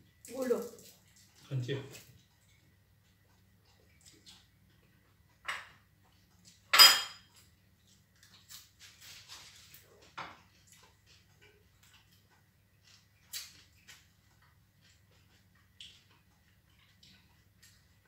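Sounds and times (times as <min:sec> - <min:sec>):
plates clinking: 0:06.7 - 0:07.3.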